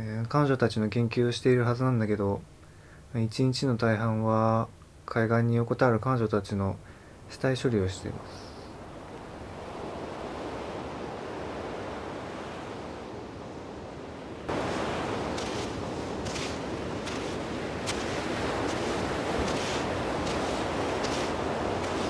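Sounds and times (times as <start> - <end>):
waves washing on shore: 8.0 - 22.0
footsteps crunching on sand: 14.5 - 22.0.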